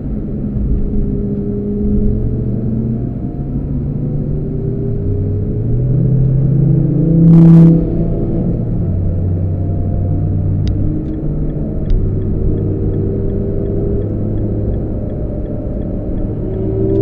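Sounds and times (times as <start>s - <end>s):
car engine and tyres droning: 0.0s - 17.0s.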